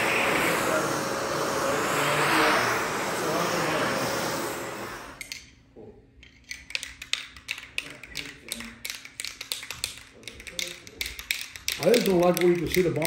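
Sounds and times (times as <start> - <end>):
shop vacuum running: 0.0 - 5.2
light irregular clicks and taps: 6.2 - 13.0.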